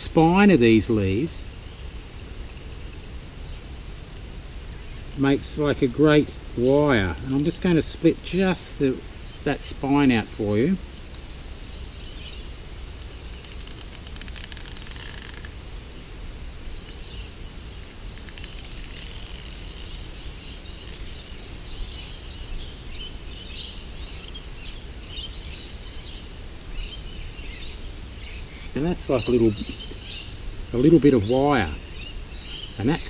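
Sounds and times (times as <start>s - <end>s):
small birds chirping: 0.0s - 4.0s, 4.6s - 33.0s
outdoor background noise: 0.0s - 33.0s
palm leaf tearing: 13.1s - 15.6s, 18.1s - 20.2s.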